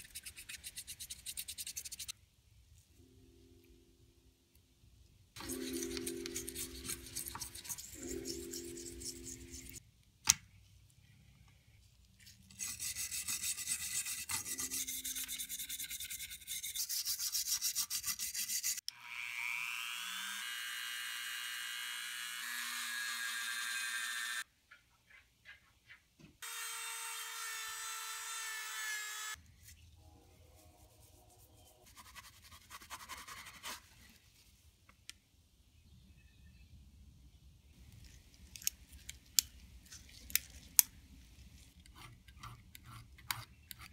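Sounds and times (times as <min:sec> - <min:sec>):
toothbrush scrubbing metal: 0:00.0 - 0:02.1, 0:05.4 - 0:09.8, 0:12.5 - 0:18.8.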